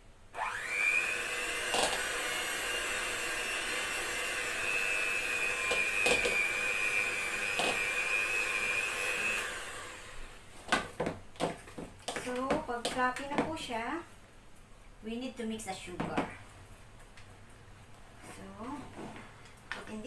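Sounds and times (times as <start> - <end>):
electric hand mixer whining: 0.4 - 10.4.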